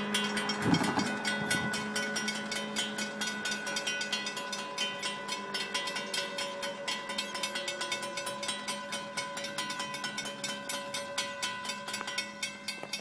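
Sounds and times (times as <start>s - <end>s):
car passing: 0.0s - 4.5s
railroad crossing bells ringing: 0.0s - 13.0s.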